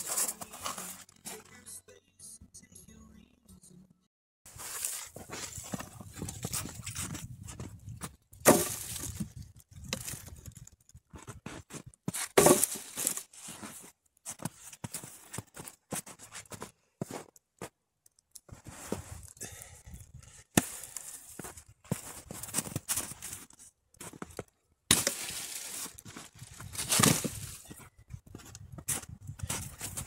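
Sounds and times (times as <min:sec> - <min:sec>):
footsteps crunching on snow: 0:04.5 - 0:09.3, 0:11.2 - 0:17.3, 0:20.7 - 0:30.0
log rounds thudding onto woodpile: 0:08.4 - 0:09.2, 0:12.4 - 0:13.0.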